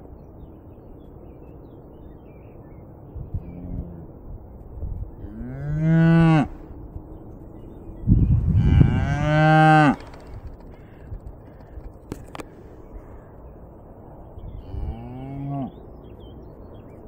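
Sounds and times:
cattle mooing: 5.2 - 6.6, 8.5 - 10.0.

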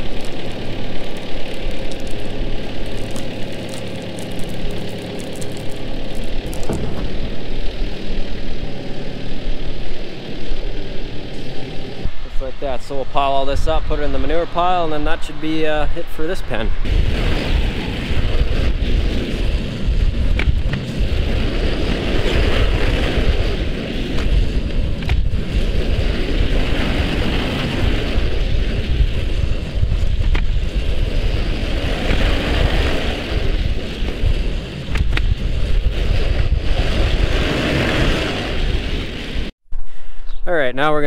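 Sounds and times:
tractor engine running: 0.0 - 25.8.

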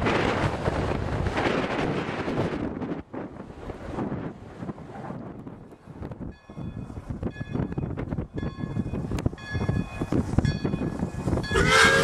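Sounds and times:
locomotive bell ringing: 6.3 - 12.0
steam locomotive exhaust chuffing: 6.4 - 12.0
steam whistle: 11.5 - 12.0.

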